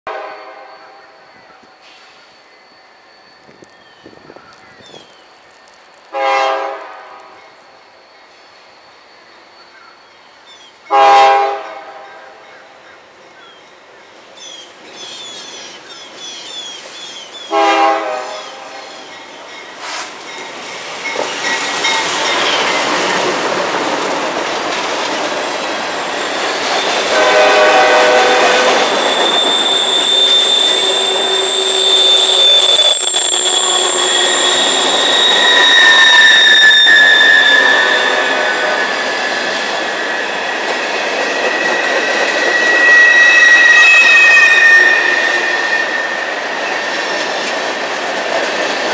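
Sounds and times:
train horn blast: 0.1 - 1.2, 6.1 - 7.5, 10.9 - 12.4, 17.5 - 19.0, 27.0 - 38.9, 42.7 - 46.3
diesel locomotives passing: 0.1 - 48.9
steel wheel squeal: 0.2 - 6.3, 18.4 - 48.9.

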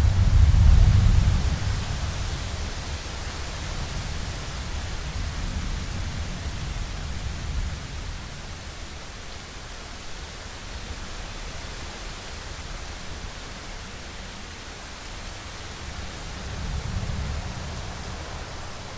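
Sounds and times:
low thunder rumble: 0.0 - 8.2
rain: 0.0 - 18.9
wind: 0.0 - 18.9.

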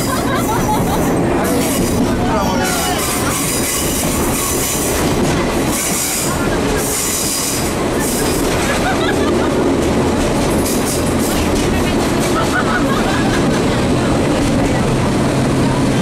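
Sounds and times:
wheels squealing: 0.0 - 9.0
train wheels rumbling on rails: 0.0 - 16.0.

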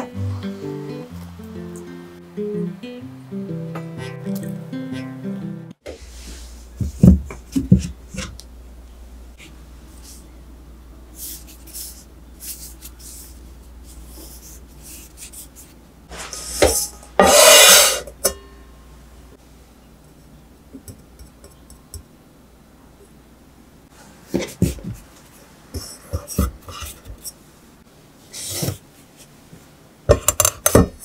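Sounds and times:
faint rustling of potatoes: 11.1 - 16.6
pot scraping on wooden trivet: 16.1 - 18.1.

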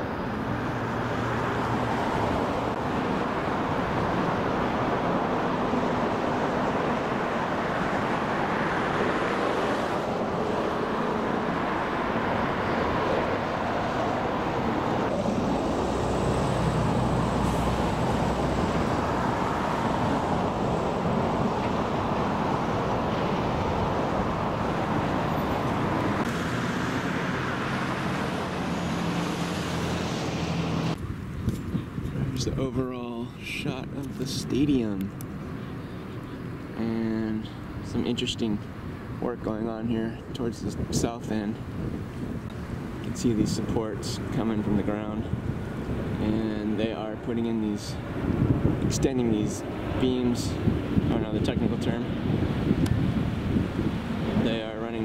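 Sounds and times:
road traffic rumble: 0.0 - 55.0.

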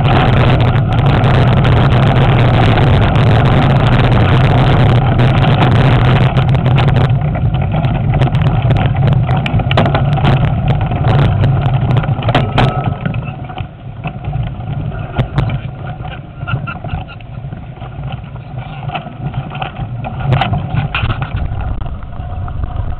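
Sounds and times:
bike rattling and knocking: 0.0 - 22.9
wind rumbling on microphone: 0.0 - 22.9.

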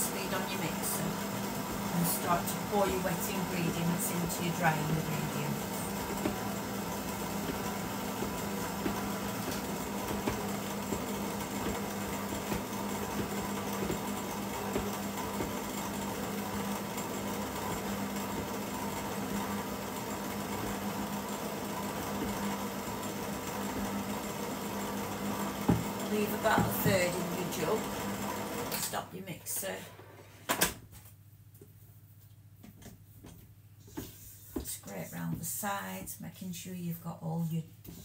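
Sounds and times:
stand mixer motor hum: 0.0 - 28.8.

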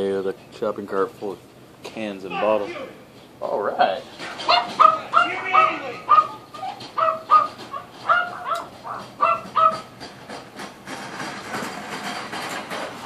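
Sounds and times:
shopping cart rattling: 4.0 - 13.0
short high repeated calls: 4.4 - 9.8.

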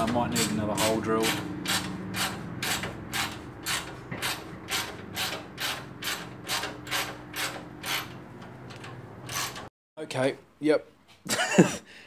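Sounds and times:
ratchet wrench clicking: 0.4 - 8.2, 8.8 - 9.7.

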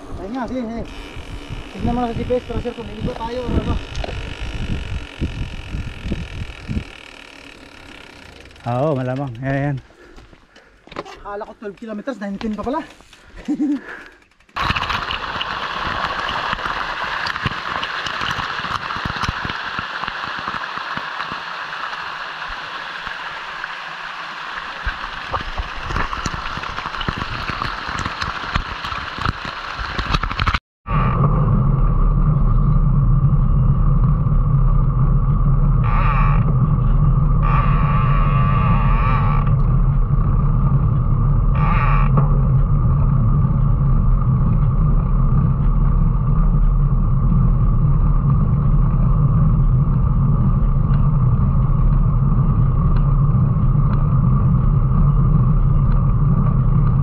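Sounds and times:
wind and tyre rumble: 0.0 - 13.5, 14.1 - 57.0
stream rushing over rocks: 14.6 - 30.5.

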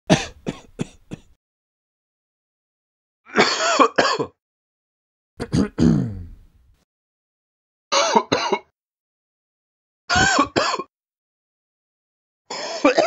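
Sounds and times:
person coughing: 0.1 - 1.3, 3.3 - 4.4, 5.4 - 6.4, 7.9 - 8.7, 10.1 - 10.9, 12.5 - 13.0.

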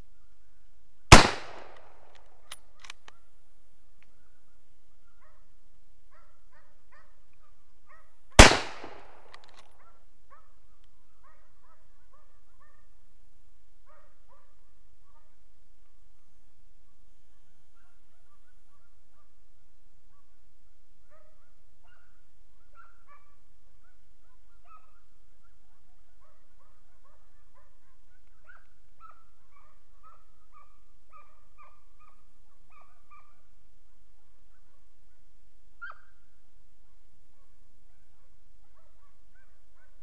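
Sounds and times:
dogs yelping and barking: 21.1 - 25.6, 26.2 - 33.4, 35.8 - 36.1.

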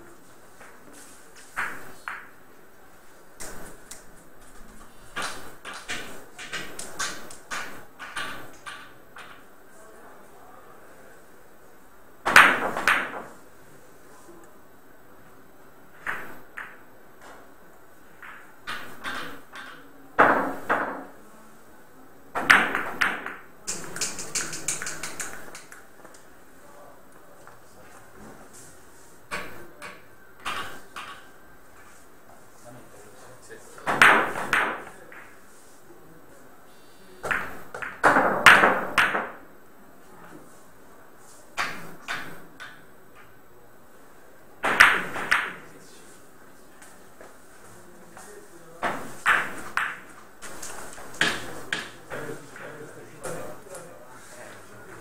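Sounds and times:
billiard balls knocking: 0.5 - 2.4, 3.4 - 9.5, 12.2 - 13.4, 18.2 - 21.2, 22.4 - 25.8, 29.3 - 31.4, 33.8 - 35.5, 37.2 - 39.4, 41.6 - 43.3, 44.6 - 45.7, 48.8 - 53.8
billiard balls clicking: 3.4 - 9.5, 18.2 - 21.1, 22.4 - 26.3, 29.3 - 31.4
light clicks of balls: 23.7 - 26.3.

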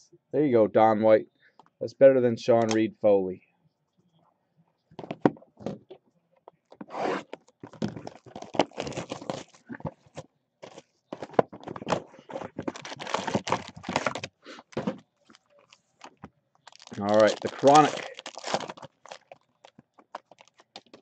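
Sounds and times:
plastic wrap crinkling and tearing: 7.7 - 10.8, 12.6 - 14.4, 15.2 - 21.0.

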